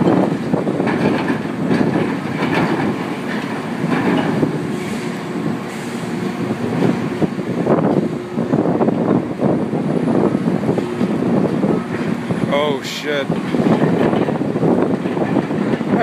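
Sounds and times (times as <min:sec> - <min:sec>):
knocks and clanks: 0:00.0 - 0:08.1, 0:13.1 - 0:16.0
diesel machinery running: 0:00.0 - 0:16.0.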